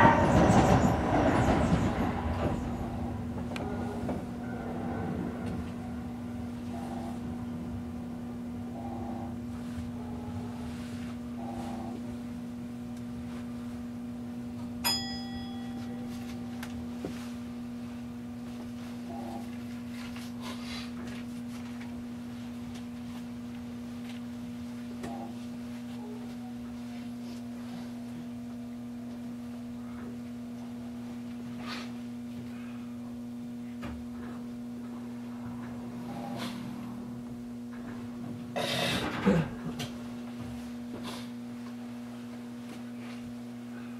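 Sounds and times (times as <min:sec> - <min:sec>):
electrical hum in train cab: 0:00.0 - 0:43.9
short bright ding: 0:14.8 - 0:16.2.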